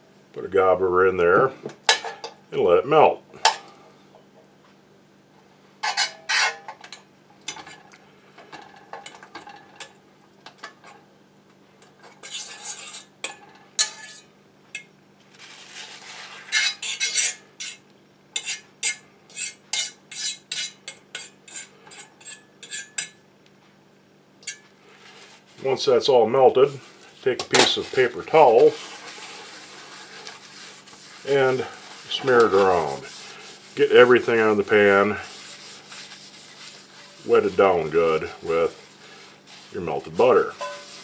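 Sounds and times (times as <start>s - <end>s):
fork scraping skillet: 5.8s - 6.8s, 12.0s - 17.8s, 18.4s - 23.2s, 24.4s - 25.5s, 26.7s - 41.0s
fork clinking on skillet: 13.2s - 14.2s, 24.4s - 24.7s, 40.6s - 40.9s.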